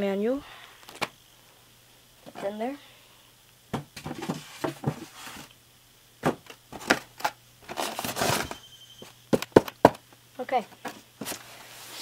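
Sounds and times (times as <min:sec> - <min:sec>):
packaging rustling: 0:06.4 - 0:08.6.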